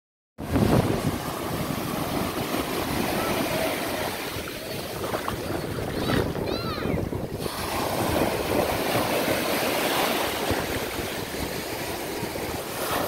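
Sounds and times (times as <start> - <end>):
small waves washing on sand: 0.4 - 13.0
wind noise on microphone: 0.4 - 13.0.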